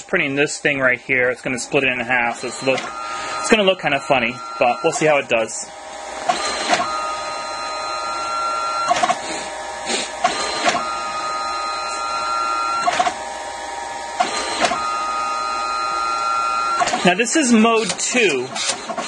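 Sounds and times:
photo printer mechanical whine: 0.0 - 19.0
printer clicks: 12.8 - 13.2, 17.8 - 19.0.

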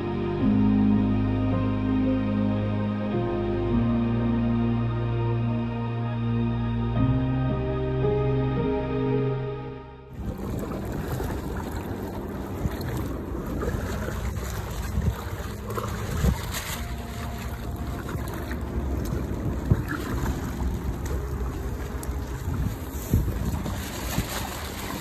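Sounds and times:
wind buffeting microphone: 10.1 - 25.0.

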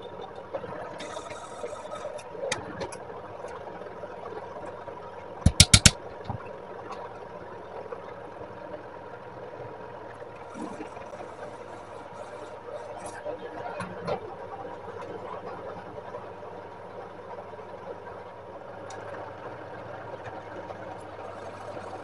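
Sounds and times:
faint hum: 0.0 - 22.0
sharp knocks: 5.5 - 6.0.

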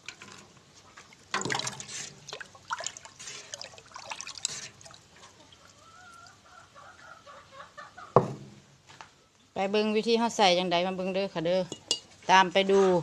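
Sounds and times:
watering can clinking on rim: 1.3 - 5.0
water splashing in metal bin: 1.3 - 5.3
hen clucking: 5.2 - 8.2.

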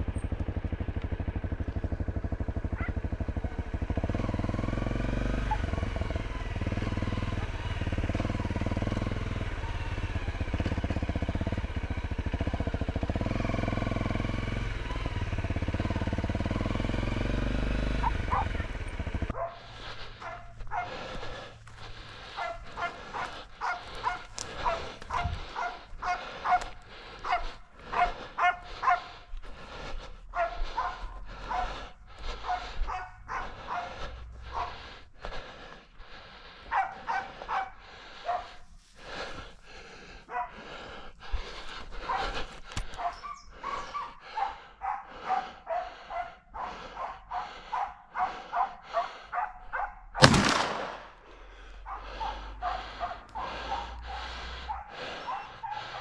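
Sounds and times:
dog barking: 2.7 - 3.7, 5.4 - 6.2, 17.9 - 21.1, 22.3 - 29.3, 30.3 - 34.8, 36.7 - 38.6, 40.3 - 40.7, 42.0 - 50.2, 51.8 - 56.0
shotgun shot: 50.2 - 51.2.

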